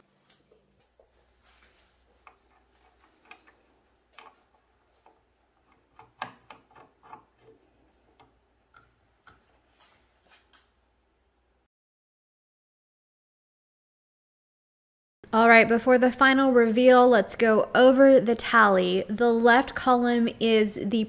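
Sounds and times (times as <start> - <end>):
knob screwing clicks: 4.2 - 9.4.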